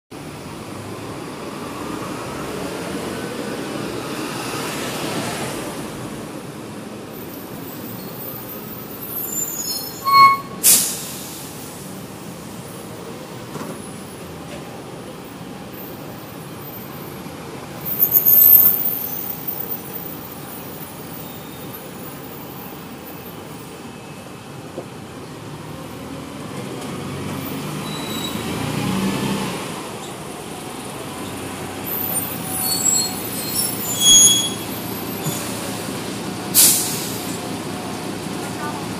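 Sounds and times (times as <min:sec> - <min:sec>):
bus engine idling: 0:05.8 - 0:26.8, 0:29.8 - 0:38.9
bus brakes squealing: 0:07.2 - 0:12.0, 0:17.8 - 0:24.3, 0:27.4 - 0:29.1, 0:31.2 - 0:37.5
air brakes hissing: 0:09.2 - 0:12.0, 0:36.5 - 0:37.4.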